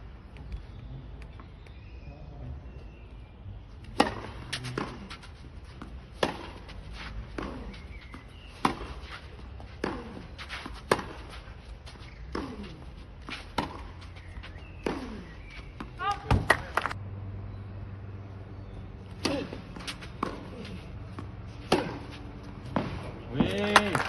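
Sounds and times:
tennis ball struck by rackets: 0:03.8 - 0:11.5, 0:12.1 - 0:17.0, 0:19.1 - 0:24.0.

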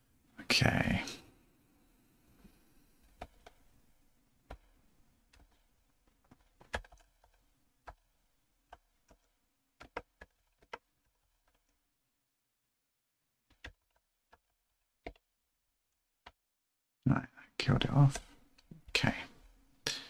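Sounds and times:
keyboard keystrokes: 0:06.2 - 0:08.0.

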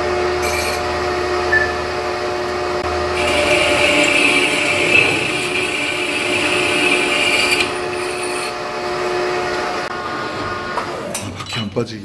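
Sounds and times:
metal lathe running: 0:00.3 - 0:01.0, 0:02.8 - 0:09.9
high-pitched metal cutting: 0:00.4 - 0:00.8, 0:02.9 - 0:09.7.

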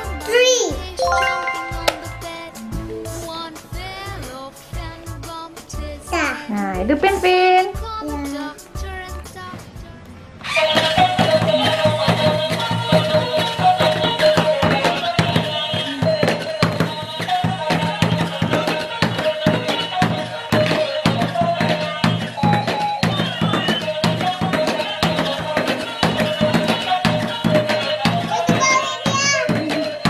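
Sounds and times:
electronic toy melody: 0:01.0 - 0:03.5
steady drum beat: 0:10.9 - 0:30.0.

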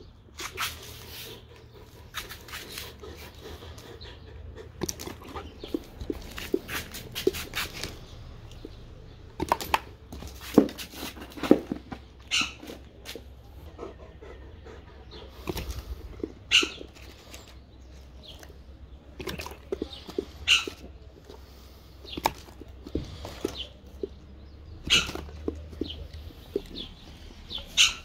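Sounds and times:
dog chewing and smacking: 0:01.5 - 0:07.4.

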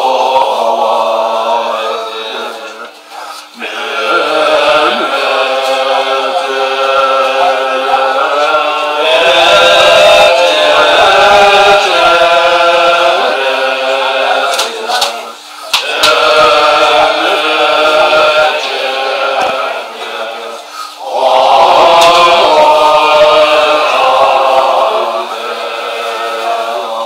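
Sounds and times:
monks chanting in unison: 0:00.0 - 0:27.0.

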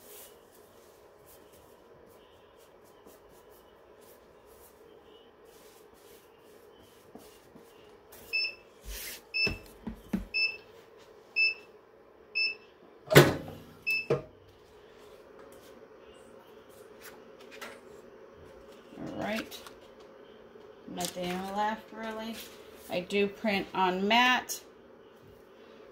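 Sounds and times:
heat press timer beeping: 0:13.8 - 0:14.2.

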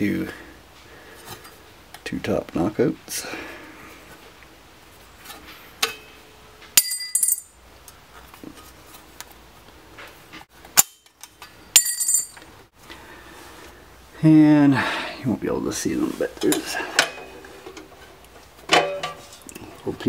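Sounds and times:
sheet metal snapping with ring: 0:10.8 - 0:11.2.

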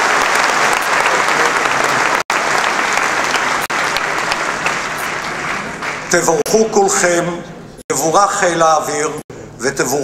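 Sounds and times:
crowd clapping: 0:00.0 - 0:06.5.

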